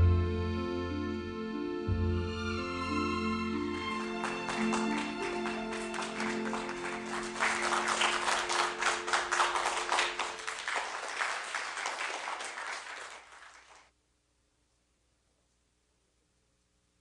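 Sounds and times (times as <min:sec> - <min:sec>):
backing music: 0:00.0 - 0:10.6
audience applause: 0:03.3 - 0:13.9.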